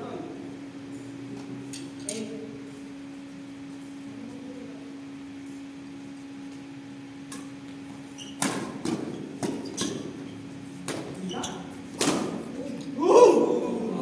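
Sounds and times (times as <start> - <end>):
steady low hum: 0.0 - 14.0
rackets hitting shuttlecock: 12.0 - 12.5.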